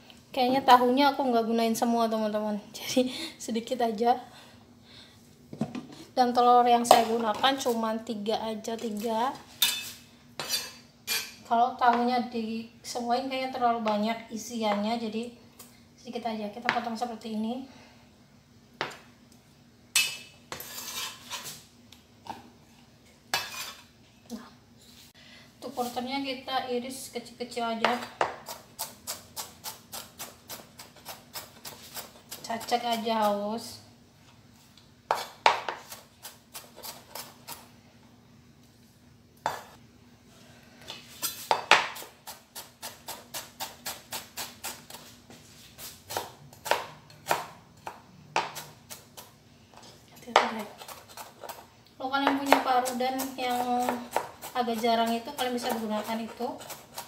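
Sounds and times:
knife scraping cutting board: 0:09.6 - 0:11.4, 0:20.5 - 0:21.7, 0:23.3 - 0:23.9, 0:28.4 - 0:33.3, 0:35.1 - 0:37.7, 0:41.0 - 0:47.4, 0:48.4 - 0:51.6, 0:52.5 - 0:57.0
knife chopping on cutting board: 0:35.1 - 0:37.6, 0:46.1 - 0:49.3, 0:52.2 - 0:57.0.

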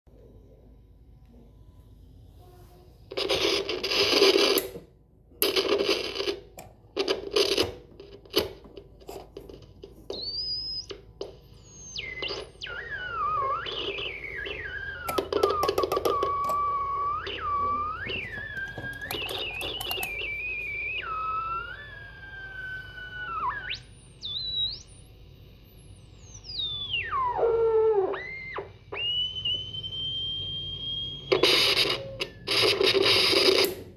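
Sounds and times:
loud static bursts: 0:03.1 - 0:04.8, 0:05.4 - 0:08.6, 0:31.2 - 0:33.9
whistling tone gliding in pitch: 0:11.5 - 0:31.4.

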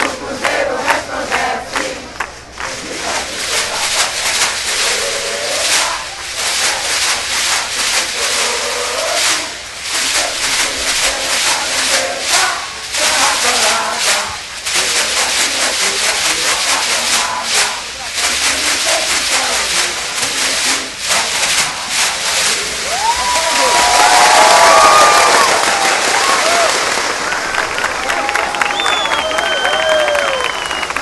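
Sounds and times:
crowd voices: 0:00.0 - 0:31.0
plastic hand shakers rattling: 0:02.8 - 0:25.5.

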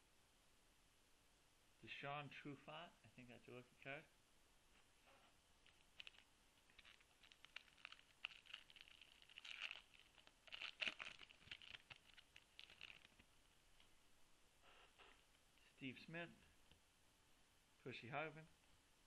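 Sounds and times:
wrapper tearing: 0:05.6 - 0:13.3
wrapper crinkling: 0:05.6 - 0:13.4.

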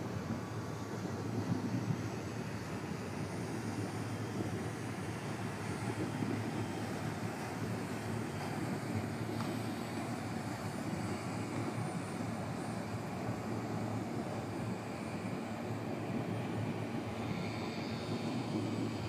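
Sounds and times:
faint high whine: 0:09.3 - 0:19.0.

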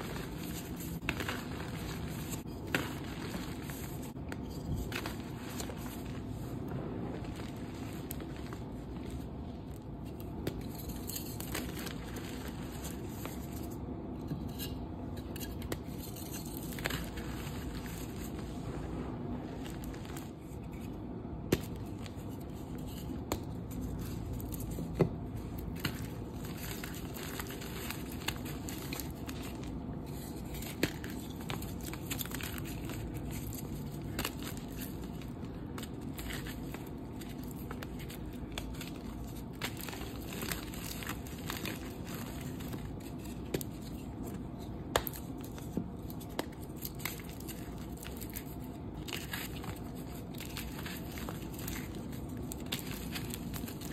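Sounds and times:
chalk crunching and rustling: 0:00.0 - 0:53.9.

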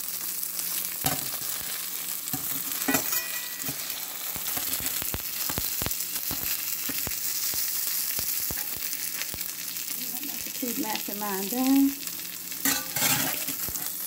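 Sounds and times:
butter sizzling and popping: 0:00.0 - 0:14.0
metal spatula knocking pan: 0:02.3 - 0:03.8.

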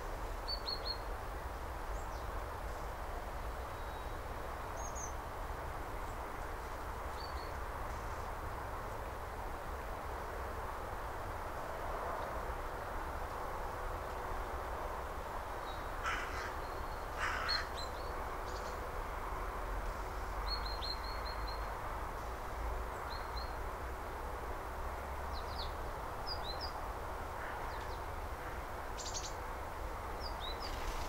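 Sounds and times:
outdoor background noise: 0:00.0 - 0:31.0
harsh crow-like calls: 0:16.0 - 0:17.8.

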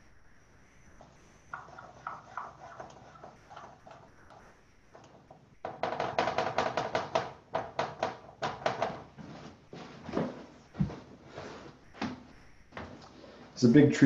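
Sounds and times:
pencil scratching on paper: 0:01.0 - 0:04.5, 0:08.9 - 0:13.5.

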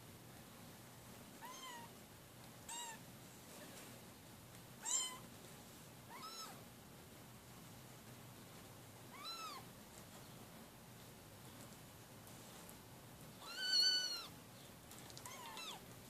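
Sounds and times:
kittens mewing: 0:02.7 - 0:03.0, 0:04.8 - 0:05.3, 0:06.1 - 0:06.6, 0:13.4 - 0:14.4, 0:15.2 - 0:15.8.

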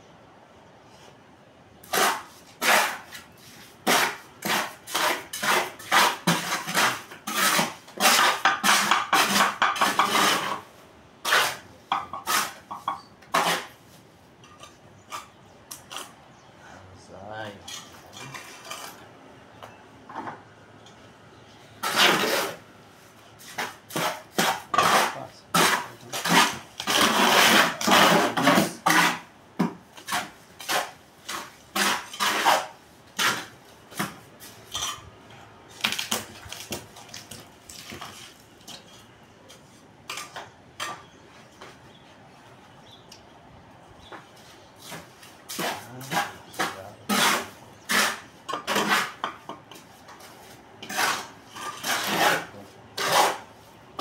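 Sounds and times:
trowel scraping cement mortar: 0:01.8 - 0:13.8, 0:21.8 - 0:22.6, 0:23.4 - 0:29.3, 0:29.9 - 0:35.0, 0:44.8 - 0:53.6.

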